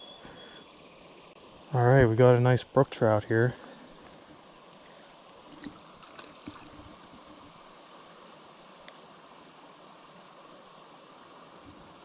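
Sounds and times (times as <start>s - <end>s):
flowing mountain stream: 0.0s - 12.0s
soft splashes and ticks: 4.0s - 7.7s, 8.8s - 9.0s.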